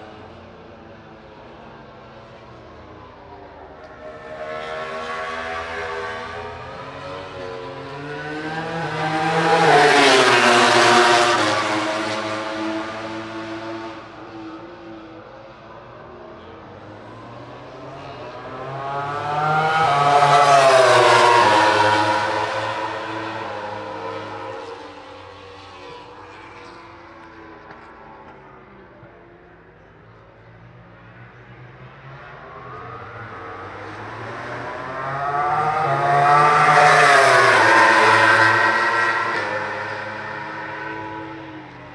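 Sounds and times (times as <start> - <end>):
racing motorcycle approaching: 17.8 - 28.4, 32.0 - 41.9.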